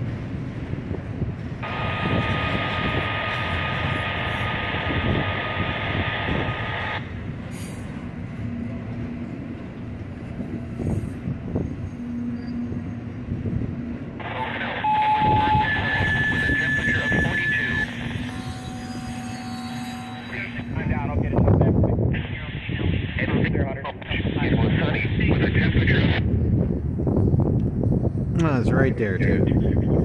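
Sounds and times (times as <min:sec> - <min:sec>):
freight train rumbling: 0:00.0 - 0:30.0
train wheels squealing: 0:10.5 - 0:13.2, 0:14.8 - 0:20.7.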